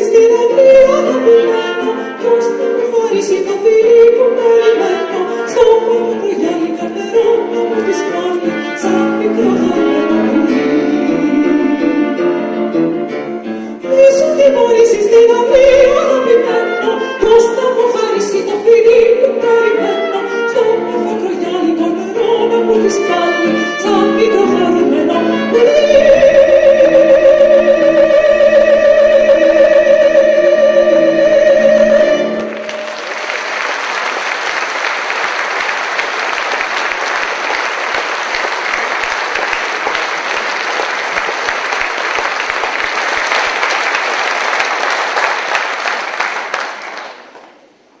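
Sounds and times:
woman singing with vibrato: 0:00.0 - 0:12.5, 0:13.8 - 0:33.1
piano cello and brass music: 0:00.0 - 0:33.7
audience applauding: 0:32.4 - 0:47.6.

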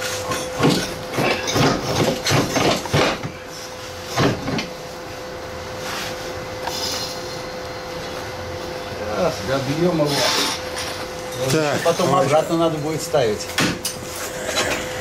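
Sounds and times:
metal knocks and clanks: 0:00.3 - 0:03.3.

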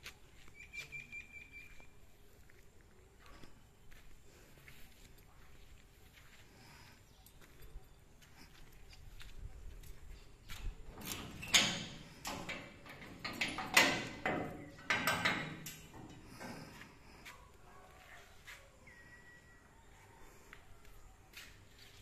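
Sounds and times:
metal gate clanking and rattling: 0:10.7 - 0:16.8.

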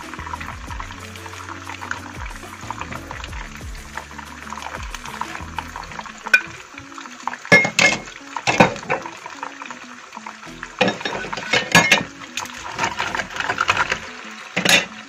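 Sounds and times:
background music with bass line: 0:00.0 - 0:15.0
clinks and knocks against a pan: 0:06.3 - 0:06.6, 0:07.5 - 0:09.1, 0:10.8 - 0:12.1, 0:14.6 - 0:14.9.

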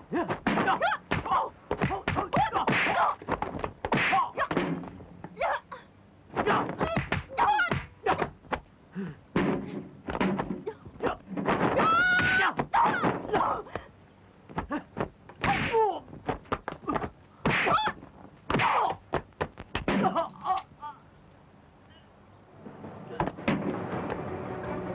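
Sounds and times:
fighters shouting and grunting: 0:00.0 - 0:03.3, 0:05.4 - 0:08.4, 0:10.7 - 0:13.9.

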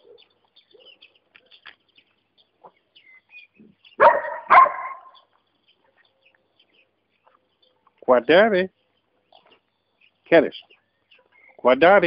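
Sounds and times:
faint bird chirps: 0:00.0 - 0:11.8
puppy barking: 0:04.0 - 0:05.2.

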